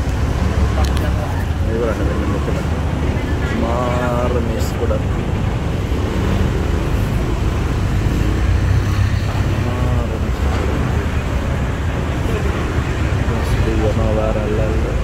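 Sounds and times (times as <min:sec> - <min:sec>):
road traffic rumble: 0:00.0 - 0:15.0
vehicle engine: 0:00.0 - 0:15.0.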